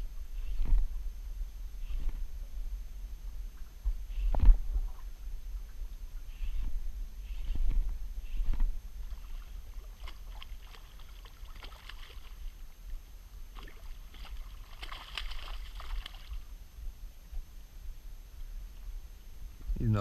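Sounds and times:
steady low rumble: 0.0s - 20.0s
water splashing and sloshing: 3.3s - 6.9s, 7.5s - 16.6s.

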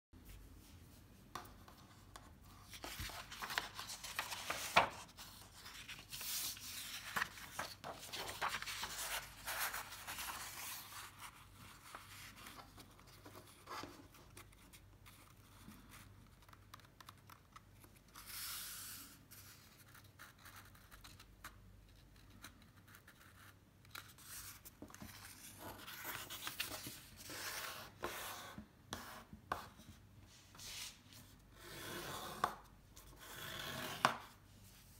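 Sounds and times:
paper rustling and sliding: 2.4s - 13.9s, 24.2s - 28.6s, 30.3s - 31.3s.

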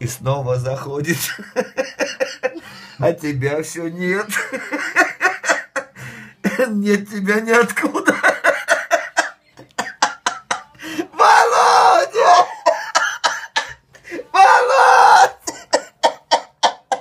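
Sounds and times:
man laughing wheezily: 1.4s - 3.0s, 8.0s - 17.0s
man shouting: 11.0s - 12.7s, 14.3s - 15.5s.

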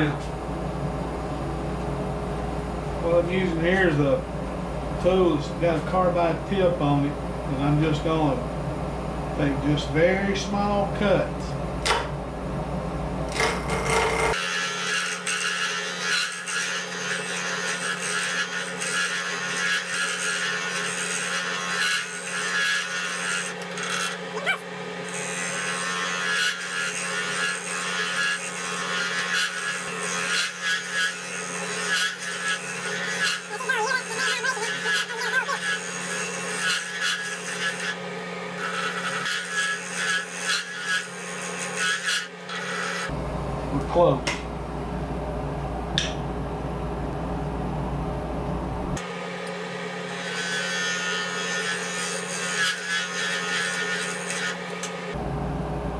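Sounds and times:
tool scraping spinning wood: 13.3s - 43.2s, 49.0s - 55.2s.

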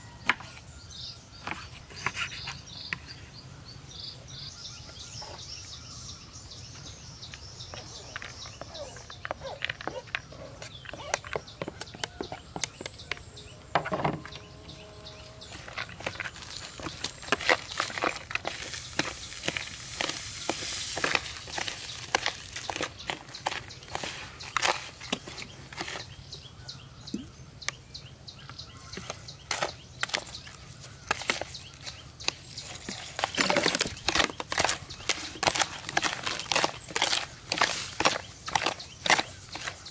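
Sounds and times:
metal spoon scraping plastic bowl: 14.2s - 26.2s, 28.9s - 39.9s.

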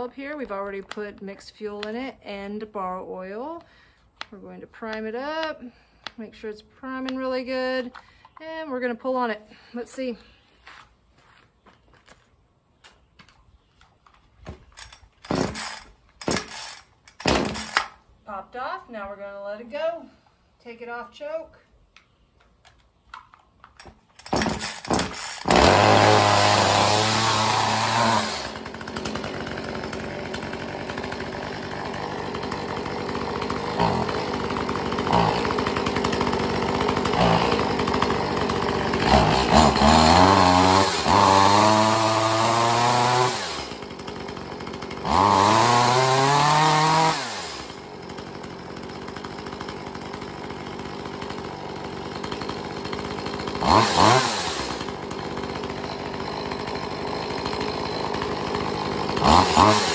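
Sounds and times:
chainsaw idling and revving: 14.8s - 18.0s, 23.8s - 59.9s.

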